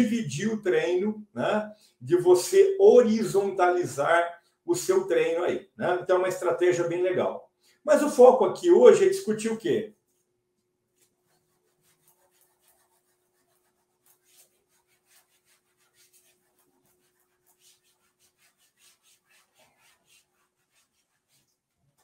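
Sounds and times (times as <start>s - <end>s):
eraser rubbing on whiteboard: 10.9s - 22.0s.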